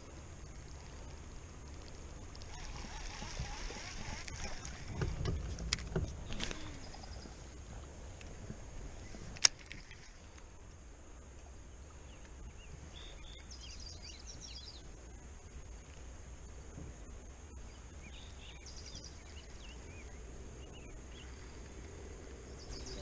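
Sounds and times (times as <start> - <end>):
faint low rumble: 0.0 - 23.0
bird chirping: 22.4 - 23.0.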